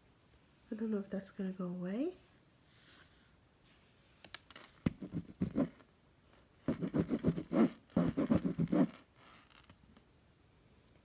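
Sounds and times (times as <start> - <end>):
scratchy rubbing on fabric: 4.6 - 5.8, 6.6 - 9.6.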